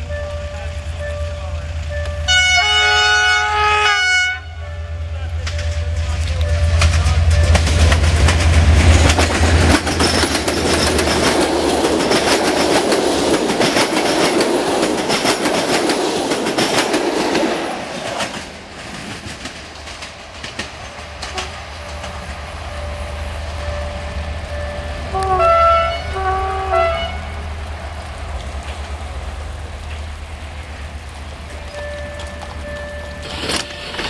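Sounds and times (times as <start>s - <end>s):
locomotive engine drone: 0.0s - 34.0s
rumble of train moving away: 0.0s - 34.0s
train wheels clattering over rail joints: 5.2s - 25.4s, 26.0s - 34.0s.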